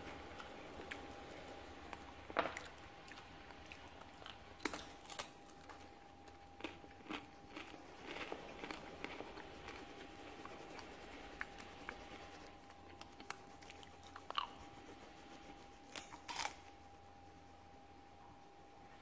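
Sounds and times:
thin steady whine: 5.1 - 19.0
pencil scratching on paper: 7.9 - 12.6, 13.2 - 15.9.

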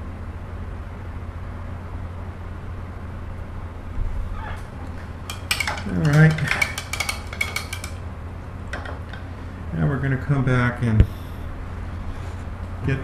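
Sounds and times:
steady low hum: 0.0 - 13.0
painting tools clinking: 5.0 - 8.0.

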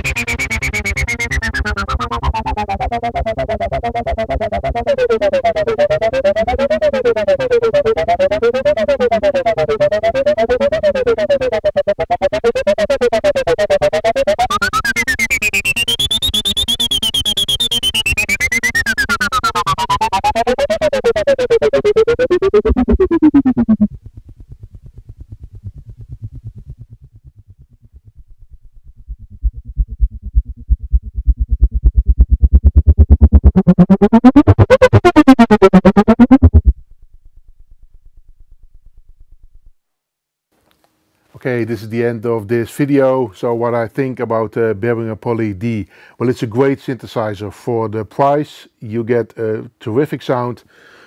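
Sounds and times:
synthesizer sequenced pattern: 0.0 - 23.9, 29.2 - 36.8.

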